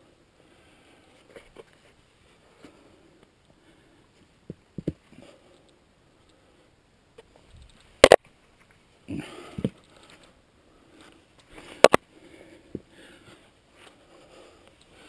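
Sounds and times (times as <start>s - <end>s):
person breathing: 0.4s - 1.4s, 2.4s - 4.2s, 5.0s - 6.8s, 9.1s - 15.0s.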